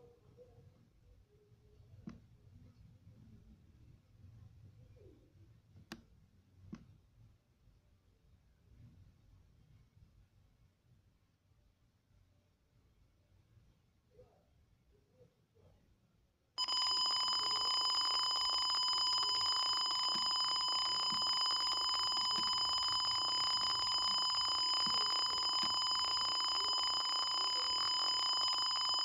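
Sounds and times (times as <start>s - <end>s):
electronic alarm beep: 16.6s - 29.0s.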